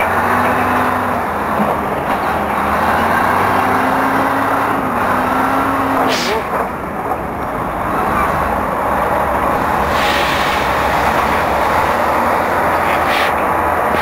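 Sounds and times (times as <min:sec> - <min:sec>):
train rumbling and clattering: 0:00.0 - 0:14.0
sharp loud noise: 0:09.8 - 0:14.0.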